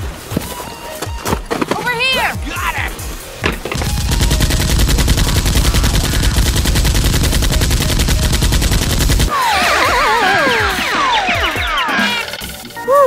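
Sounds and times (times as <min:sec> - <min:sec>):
rapid automatic gunfire: 0:03.8 - 0:11.8
wavering sliding whistle tones: 0:09.4 - 0:13.0.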